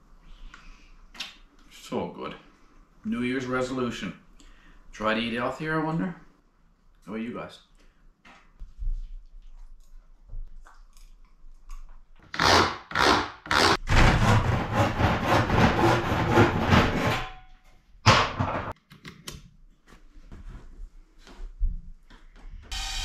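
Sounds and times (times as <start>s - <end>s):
hand saw strokes: 12.4s - 17.3s.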